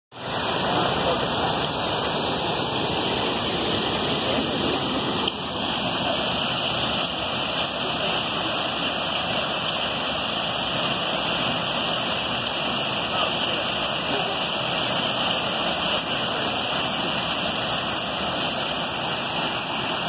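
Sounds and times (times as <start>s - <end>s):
creek rushing: 0.1s - 20.0s
waterfall splashing: 0.1s - 20.0s.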